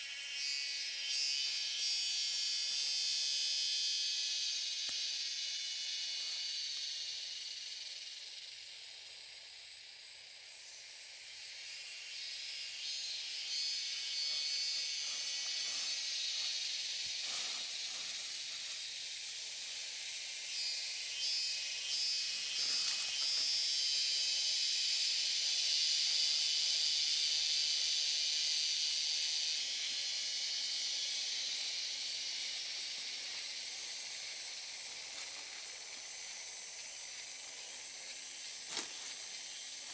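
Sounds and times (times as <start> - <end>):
insects chorus: 0.0 - 39.9
twigs and dry leaves crackling: 38.1 - 39.9.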